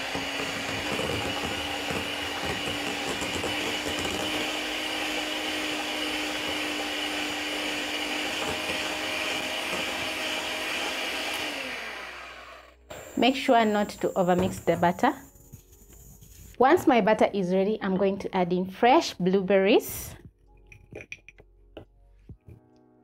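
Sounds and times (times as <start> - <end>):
electric hand mixer whirring: 0.0 - 15.0.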